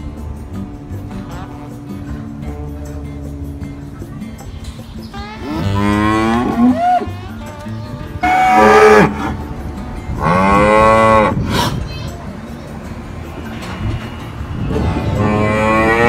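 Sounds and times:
cattle mooing: 0:05.1 - 0:09.5, 0:10.2 - 0:11.7, 0:14.7 - 0:16.0.

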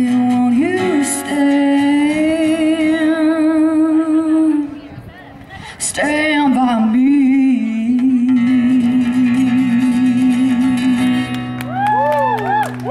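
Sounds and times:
acoustic guitar chord strummed: 0:06.2 - 0:11.7.

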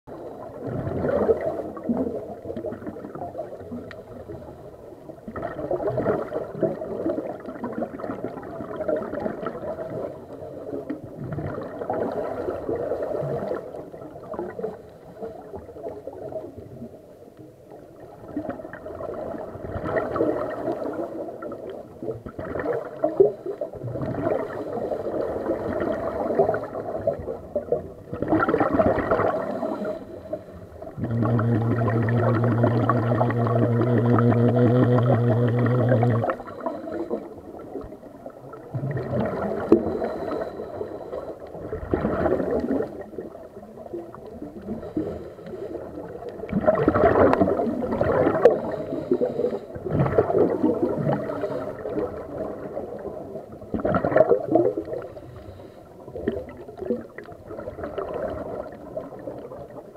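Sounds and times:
underwater murmur: 0:18.1 - 0:59.9
regulator exhalation bubbles: 0:30.8 - 0:37.3.

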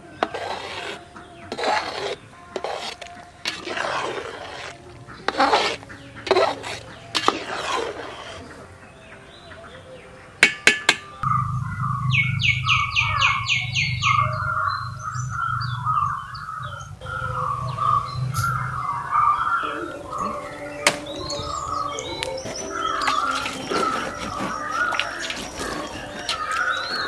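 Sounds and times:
metal ladle scraping a pot: 0:00.2 - 0:08.6, 0:16.0 - 0:27.0
bird chirping: 0:04.7 - 0:27.0
steady low hum: 0:11.2 - 0:27.0.

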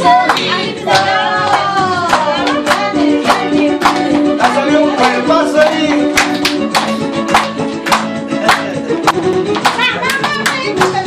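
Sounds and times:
hand claps: 0:00.0 - 0:11.0
song with singing and beat: 0:00.0 - 0:11.0.

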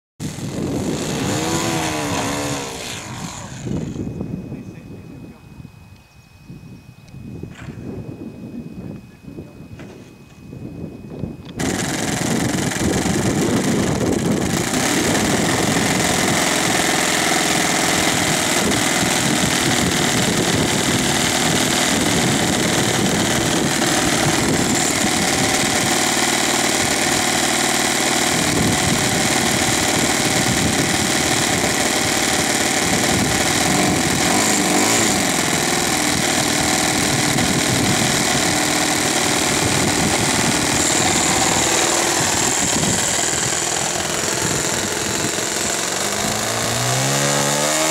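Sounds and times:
model plane engine running: 0:00.2 - 0:05.0, 0:11.5 - 0:47.9.

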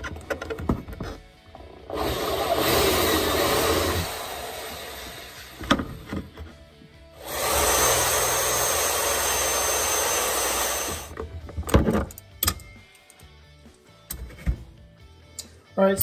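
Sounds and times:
electric drill boring plastic: 0:01.9 - 0:05.9, 0:07.2 - 0:11.1.

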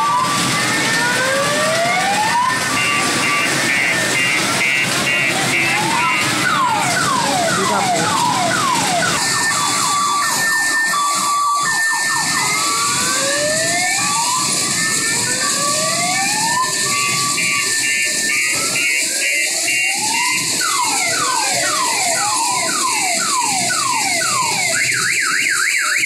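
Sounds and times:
electronic siren wails: 0:00.0 - 0:26.0
two-tone beeping: 0:02.6 - 0:08.6.

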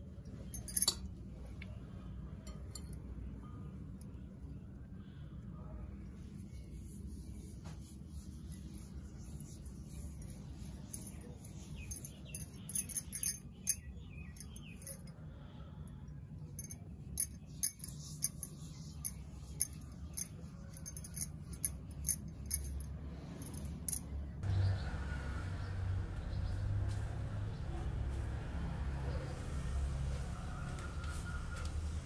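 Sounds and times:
low background hum: 0:00.0 - 0:32.0
bangles clinking: 0:00.4 - 0:01.1, 0:02.4 - 0:03.1, 0:08.1 - 0:15.2, 0:16.5 - 0:24.1.

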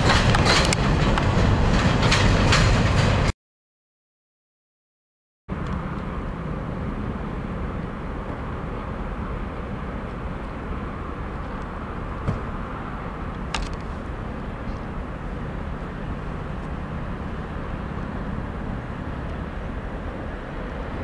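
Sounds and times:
low outdoor rumble: 0:05.5 - 0:21.0.

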